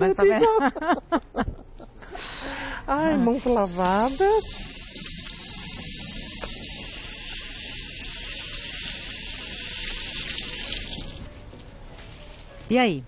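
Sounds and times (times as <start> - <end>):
tap water running into sink: 3.7 - 11.3.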